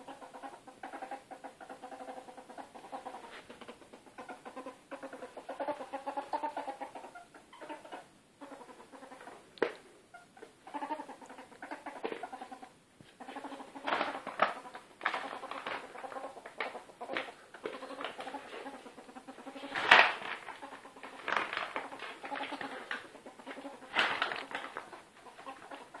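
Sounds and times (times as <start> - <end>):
ferret dooking: 0.0 - 26.0.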